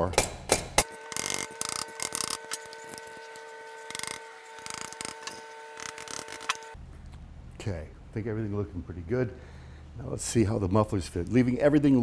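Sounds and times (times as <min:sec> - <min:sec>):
tool clicks and rubbing: 0:00.1 - 0:06.8
faint steady hum: 0:00.8 - 0:12.0.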